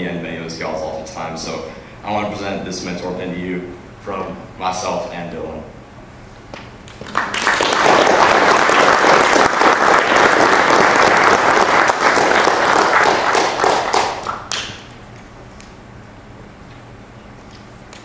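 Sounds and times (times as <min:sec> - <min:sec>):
audience applause: 0:06.9 - 0:14.7.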